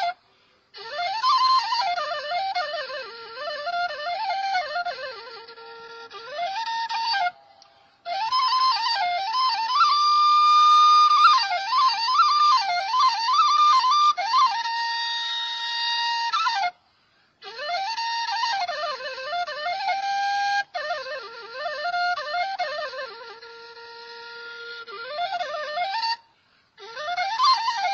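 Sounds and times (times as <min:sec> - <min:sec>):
solo flute melody: 0:00.0 - 0:27.9.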